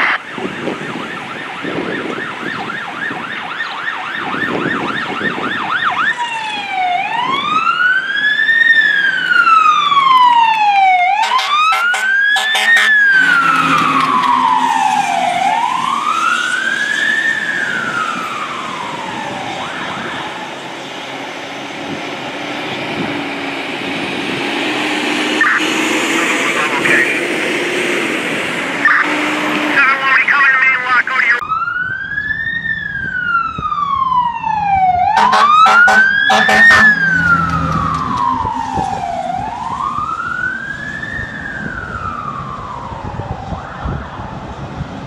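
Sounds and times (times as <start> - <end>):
fire engine siren: 0.0 - 45.0
air horn blasts: 11.2 - 15.0, 28.8 - 29.8, 35.2 - 37.1.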